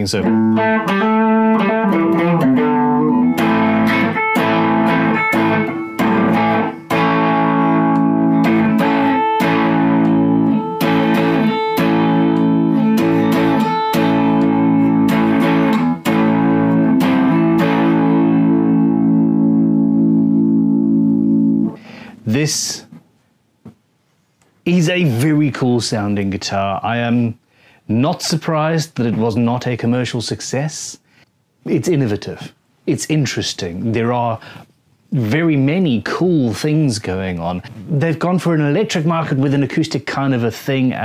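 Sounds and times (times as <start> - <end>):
electric guitar fingerstyle: 0.0 - 23.0.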